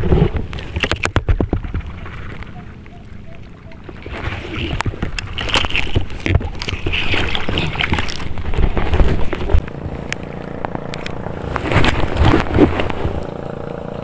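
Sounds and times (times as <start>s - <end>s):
wind rumbling on microphone: 0.0s - 14.0s
handling clicks and rustles: 4.1s - 13.4s.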